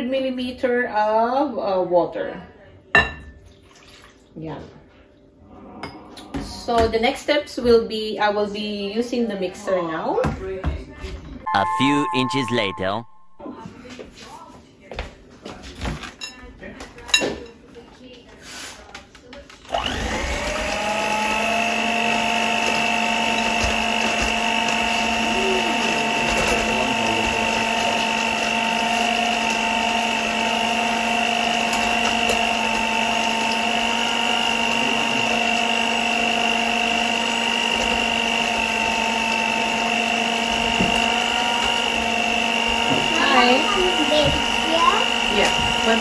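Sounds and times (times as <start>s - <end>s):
electric hand mixer whine: 19.7s - 46.0s.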